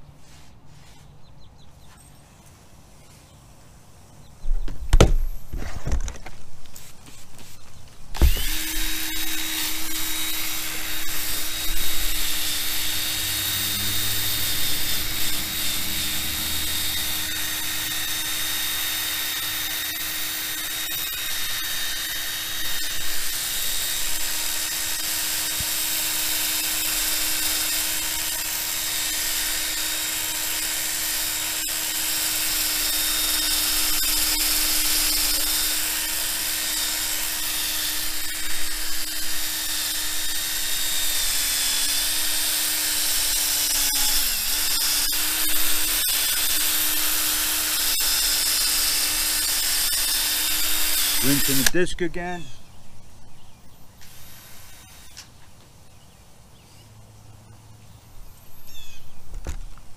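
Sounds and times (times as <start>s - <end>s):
electric drill sanding disc spinning: 5.0s - 52.5s, 53.8s - 55.4s.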